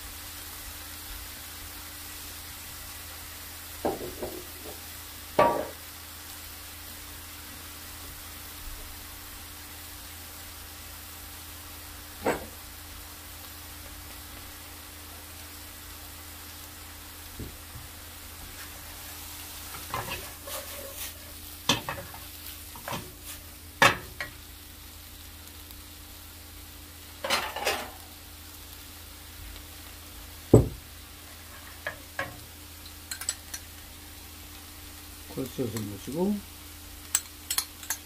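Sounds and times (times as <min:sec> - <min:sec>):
food sizzling in a frying pan: 0:00.0 - 0:38.0
utensils and dishes clattering: 0:27.2 - 0:28.0, 0:33.1 - 0:33.5
low thump: 0:30.5 - 0:30.8.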